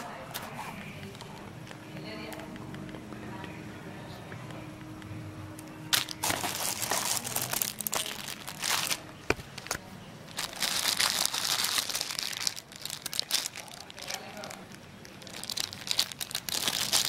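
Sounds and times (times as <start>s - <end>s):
plastic wrapping crinkling: 5.9s - 17.0s.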